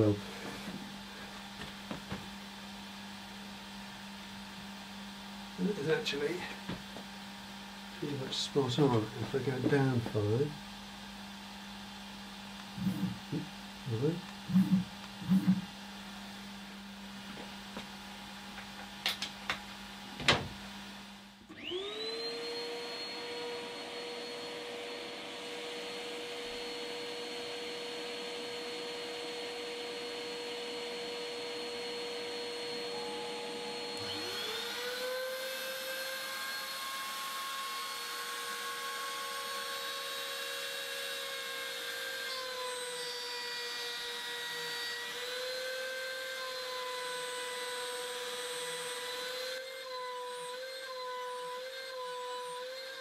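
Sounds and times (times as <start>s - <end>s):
dust extraction motor whine: 12.6s - 18.6s, 21.4s - 53.0s
router spindle motor: 12.7s - 15.8s, 21.5s - 53.0s.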